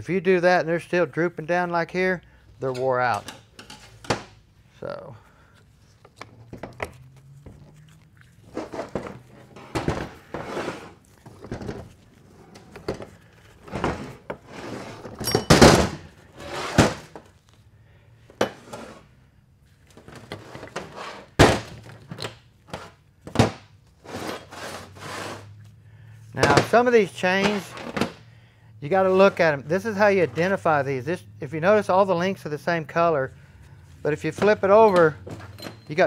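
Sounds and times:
metal parts clattering on workbench: 0:15.0 - 0:16.1.

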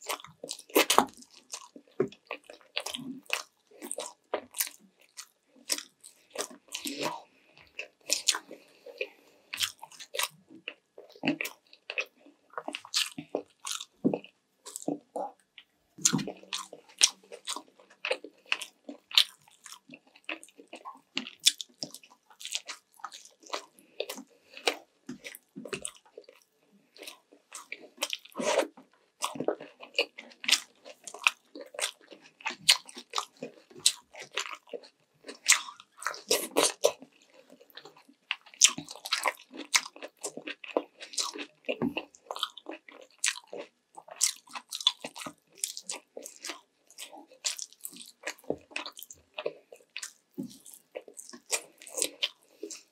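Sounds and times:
person chewing with wet smacking: 0:00.0 - 0:52.9.

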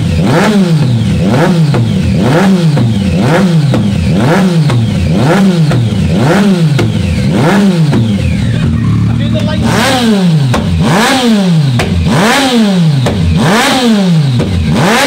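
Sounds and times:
motorcycle engine revving: 0:00.0 - 0:15.0
exhaust pops and crackles: 0:10.4 - 0:10.9, 0:12.9 - 0:13.4.

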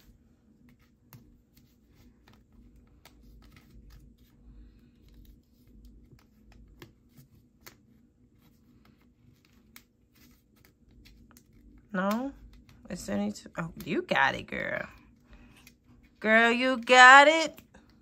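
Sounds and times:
paper bill rustling: 0:00.6 - 0:13.8.

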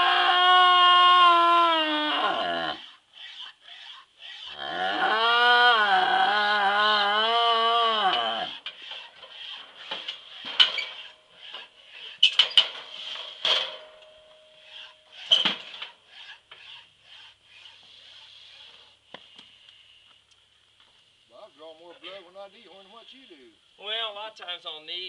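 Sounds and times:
calf bellowing: 0:00.0 - 0:03.0, 0:03.8 - 0:08.7
metallic clanks and knocks: 0:08.6 - 0:16.0.

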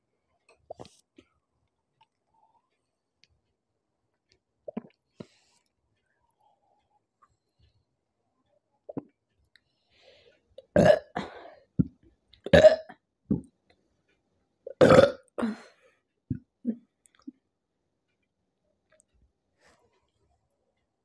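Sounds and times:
woman burping: 0:10.7 - 0:11.5, 0:12.5 - 0:13.0, 0:14.7 - 0:15.7.

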